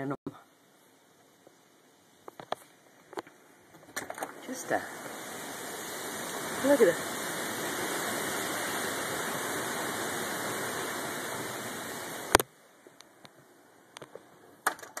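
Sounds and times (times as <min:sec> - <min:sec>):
wind and rain through trees: 0:00.0 - 0:15.0.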